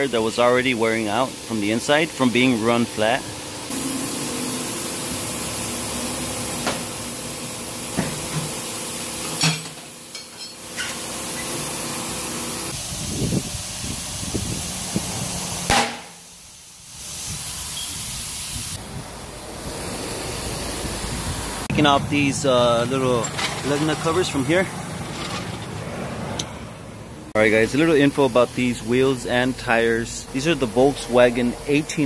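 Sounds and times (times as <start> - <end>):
compressed air hissing: 11.0 - 25.8.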